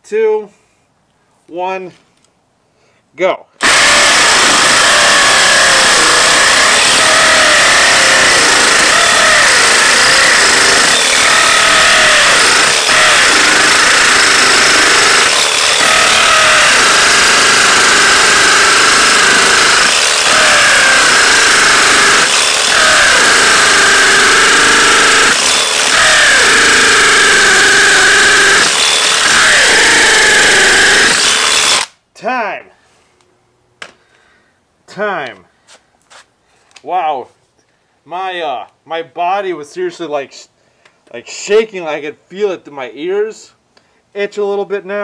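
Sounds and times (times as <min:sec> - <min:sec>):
hammer drill drilling into concrete: 0:03.6 - 0:32.0.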